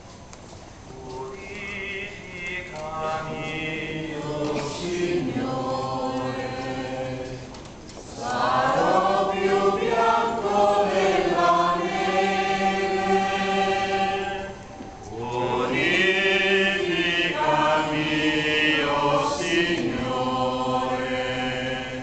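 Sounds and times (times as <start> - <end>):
crowd singing a hymn: 1.0 - 22.0.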